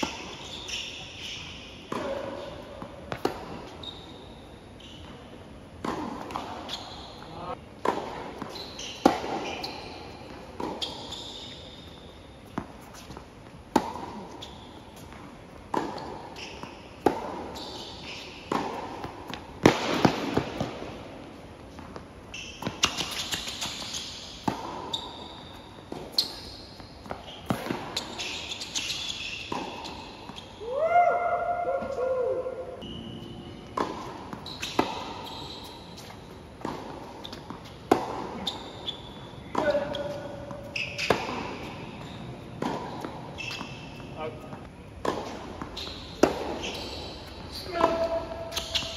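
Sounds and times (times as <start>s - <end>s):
tennis ball hit with rackets: 1.9s - 3.8s, 5.8s - 6.7s, 7.8s - 9.7s, 10.3s - 11.0s, 12.5s - 14.4s, 15.0s - 17.5s, 18.2s - 22.0s, 22.6s - 24.9s, 29.5s - 30.4s, 33.7s - 35.3s, 36.0s - 38.5s, 39.4s - 48.9s
tennis ball bouncing on court: 1.9s - 4.0s, 4.9s - 30.5s, 32.8s - 48.9s.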